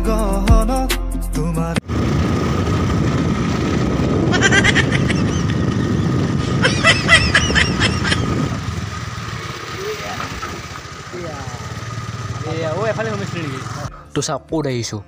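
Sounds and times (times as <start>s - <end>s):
wind on microphone: 1.8s - 9.2s
scooter engine running: 1.8s - 14.0s.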